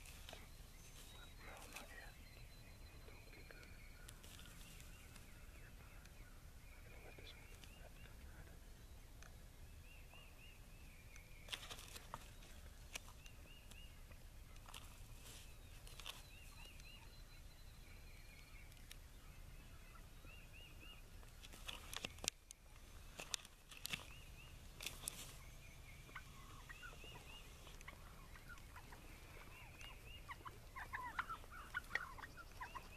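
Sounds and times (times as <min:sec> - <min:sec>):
turkeys gobbling: 0:26.0 - 0:32.9.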